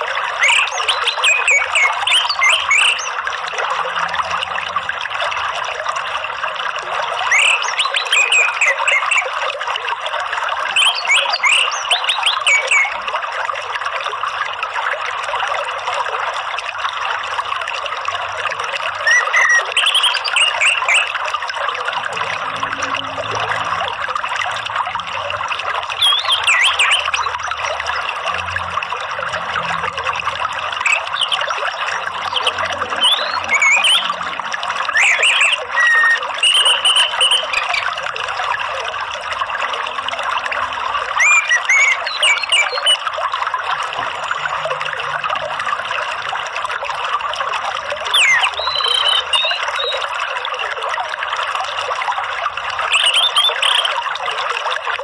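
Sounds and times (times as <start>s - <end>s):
trickling water: 0.0s - 55.0s
bird chirps: 0.4s - 3.2s, 7.3s - 9.3s, 10.8s - 13.0s, 19.0s - 21.1s, 26.0s - 27.3s, 30.8s - 34.2s, 34.9s - 38.0s, 41.2s - 43.0s, 48.1s - 50.0s, 52.9s - 53.9s.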